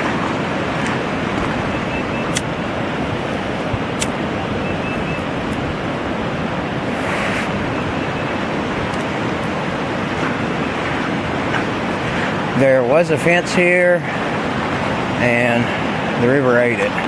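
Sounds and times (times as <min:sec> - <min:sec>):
river rushing: 0:00.0 - 0:17.0.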